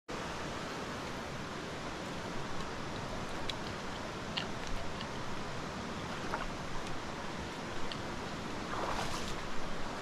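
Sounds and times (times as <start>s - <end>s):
stream rushing over riffles: 0.1s - 10.0s.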